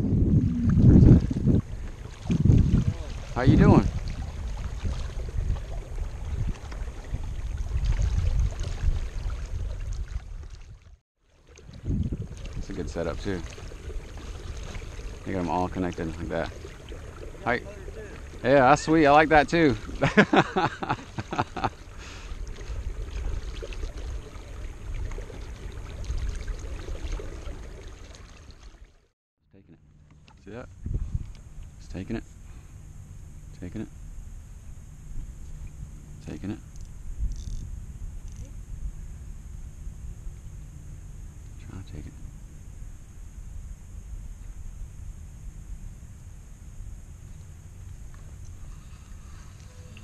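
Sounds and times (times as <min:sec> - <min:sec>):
wind buffeting microphone: 0:00.0 - 0:10.9, 0:11.6 - 0:16.5, 0:30.6 - 0:32.2
wind rumbling on microphone: 0:00.0 - 0:28.8, 0:30.3 - 0:50.0
water lapping against kayak hull: 0:00.0 - 0:29.1.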